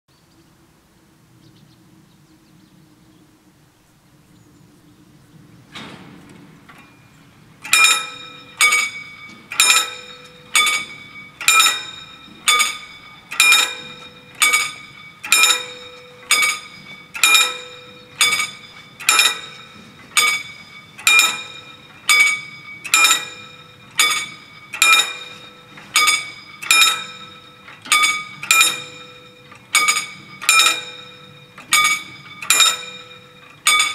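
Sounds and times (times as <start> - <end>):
level crossing warning bells: 5.4 - 33.9.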